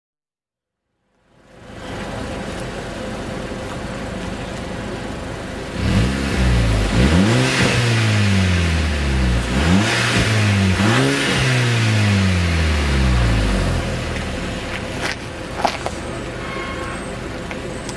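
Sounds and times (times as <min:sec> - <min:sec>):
car engine idling: 0:01.2 - 0:17.9
car engine revving: 0:05.6 - 0:17.0.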